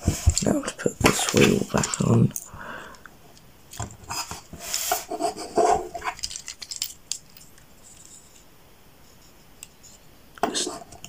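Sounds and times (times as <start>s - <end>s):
plastic toy clicks and scrapes: 6.0s - 7.4s.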